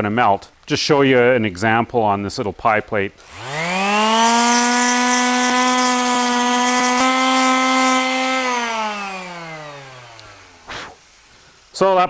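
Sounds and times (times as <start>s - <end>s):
palm sander running: 3.2s - 11.8s.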